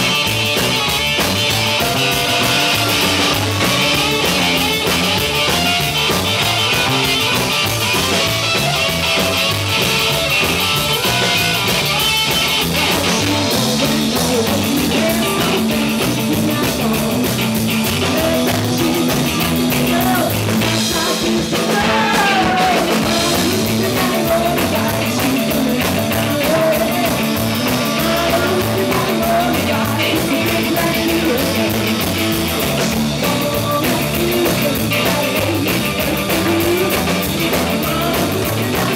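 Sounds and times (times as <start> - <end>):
drums: 0.0 - 38.9
electric guitar: 0.0 - 38.9
person singing: 1.6 - 5.8, 12.6 - 38.9.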